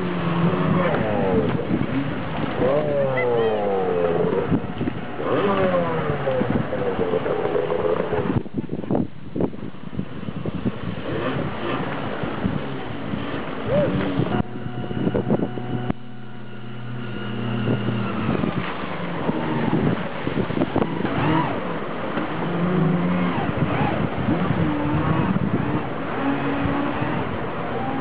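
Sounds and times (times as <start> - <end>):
hydrofoil engine revving: 0.0 - 28.0.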